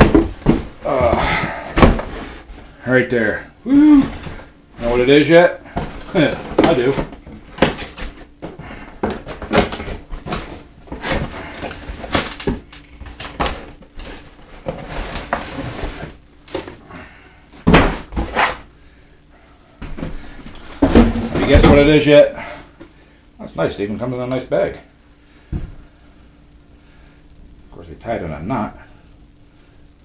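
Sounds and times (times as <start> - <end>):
cardboard scraping and rustling: 5.7 - 8.3, 9.0 - 16.8, 17.6 - 18.6.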